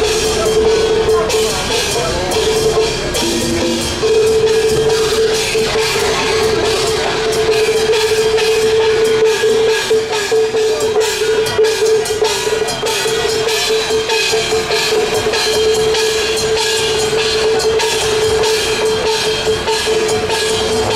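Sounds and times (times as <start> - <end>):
live band music: 0.0 - 9.6
drum kit and cymbals: 0.0 - 20.9.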